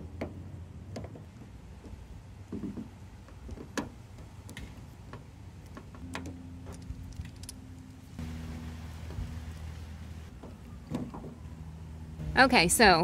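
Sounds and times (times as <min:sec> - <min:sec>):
steady low hum: 0:03.9 - 0:13.0.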